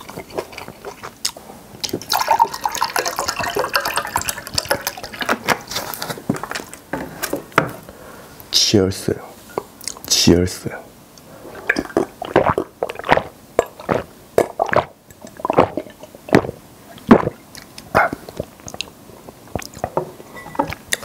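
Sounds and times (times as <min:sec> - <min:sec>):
person gulping water: 0:00.0 - 0:05.4, 0:11.5 - 0:20.0.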